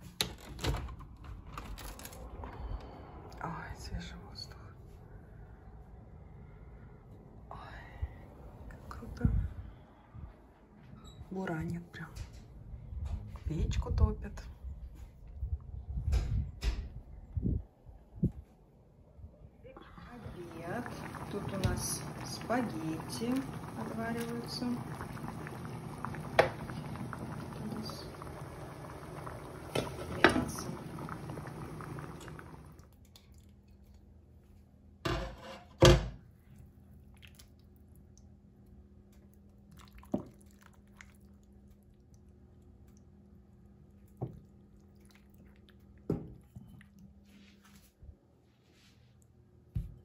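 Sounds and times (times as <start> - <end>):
water boiling in a pot: 19.8 - 33.0, 39.6 - 42.9.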